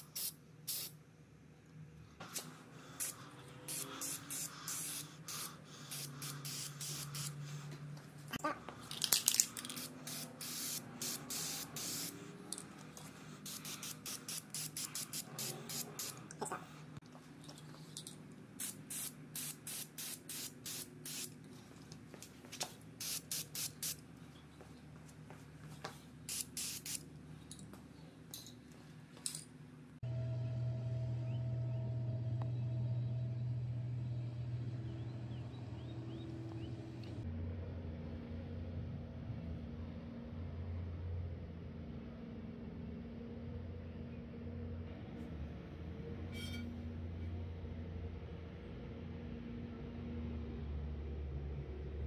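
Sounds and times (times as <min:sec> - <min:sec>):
spray can spraying: 0:00.0 - 0:00.9, 0:02.2 - 0:07.4, 0:08.9 - 0:12.2, 0:13.4 - 0:16.3, 0:18.6 - 0:21.3, 0:23.0 - 0:24.0, 0:26.3 - 0:27.0
steady low hum: 0:00.0 - 0:52.0.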